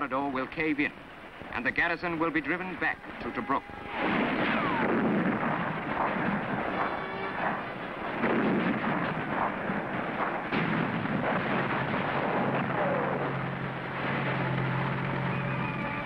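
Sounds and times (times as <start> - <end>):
battle noise: 2.5 - 16.0
low engine drone: 2.8 - 16.0
field gun firing: 3.9 - 16.0.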